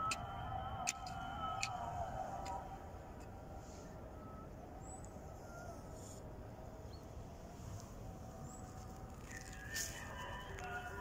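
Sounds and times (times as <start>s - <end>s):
wavering tone: 0.0s - 5.6s
faint garden ambience: 0.0s - 11.0s.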